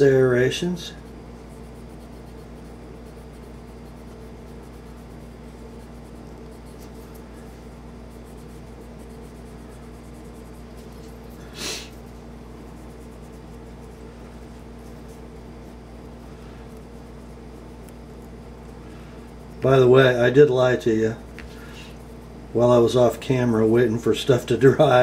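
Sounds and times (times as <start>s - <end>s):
steady low hum: 0.0s - 25.0s
cotton swab scratching metal: 1.1s - 16.1s.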